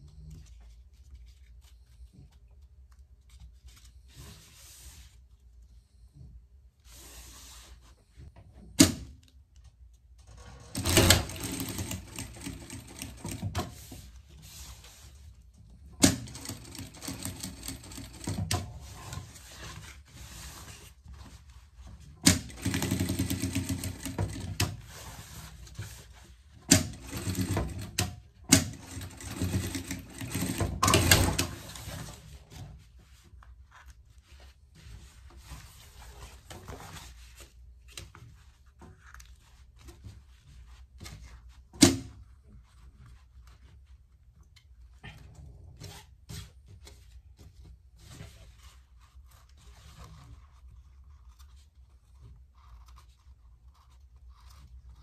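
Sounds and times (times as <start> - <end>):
sewing machine stitching: 10.3 - 13.9, 16.0 - 18.9, 22.2 - 25.2, 26.7 - 32.2.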